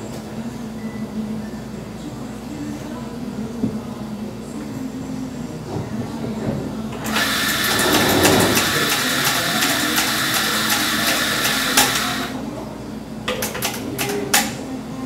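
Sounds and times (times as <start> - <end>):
electric coffee grinder running: 7.1 - 12.3.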